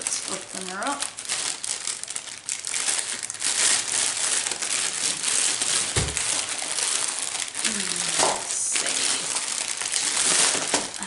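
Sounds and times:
plastic bag crinkling: 0.0 - 11.0
soft thud: 6.0 - 6.2.

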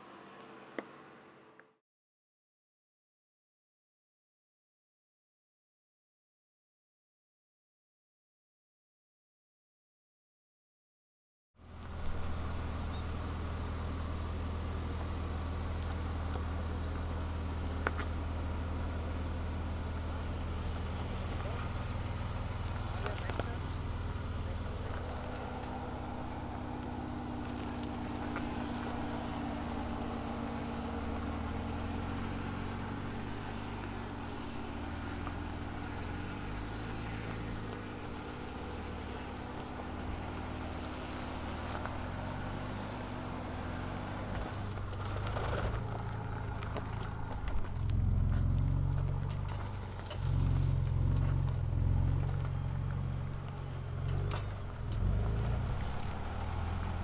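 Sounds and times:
pickup engine running: 11.6 - 57.0.

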